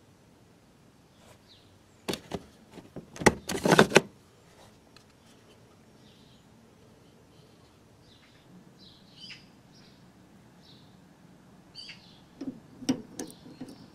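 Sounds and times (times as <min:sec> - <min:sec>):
plastic trim clicks and scrapes: 0:02.1 - 0:04.1.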